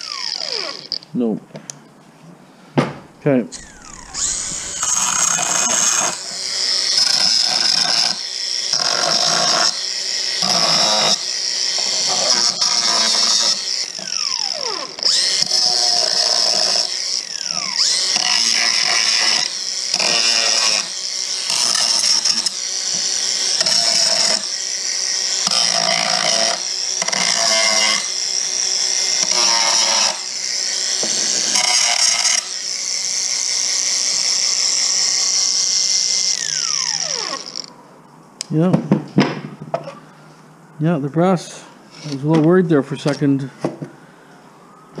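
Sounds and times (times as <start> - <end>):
power drill whining: 0.0 - 1.1, 3.5 - 37.8.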